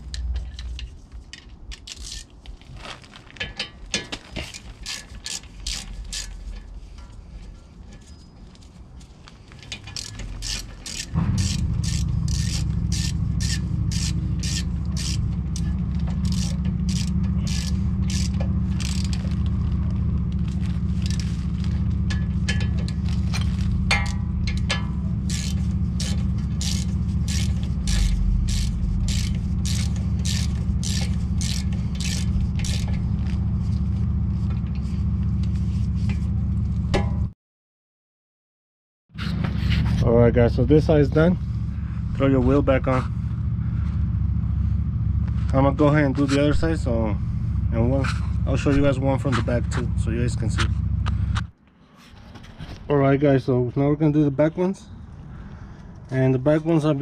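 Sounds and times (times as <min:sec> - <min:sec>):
steady low rumble: 0:00.0 - 0:37.3, 0:39.2 - 0:51.7
ratchet wrench clicking: 0:01.7 - 0:02.3, 0:04.4 - 0:06.6, 0:09.7 - 0:19.5, 0:20.9 - 0:33.1.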